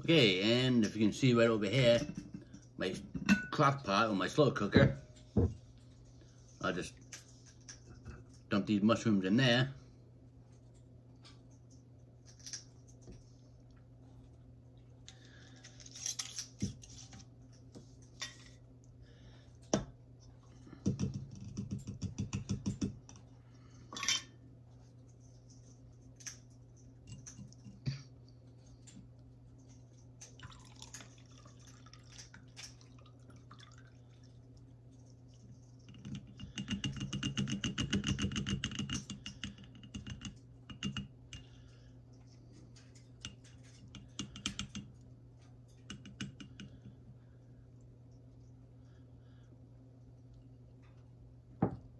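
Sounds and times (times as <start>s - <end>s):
liquid trickling through strainer: 30.3s - 37.5s.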